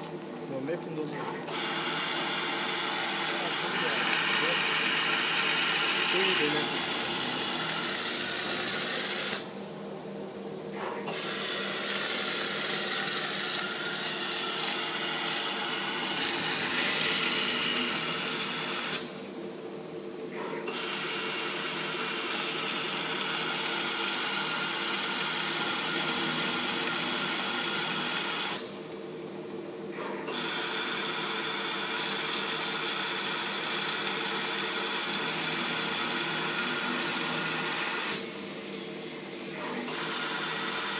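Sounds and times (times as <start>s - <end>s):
motor hum: 0.0s - 20.5s.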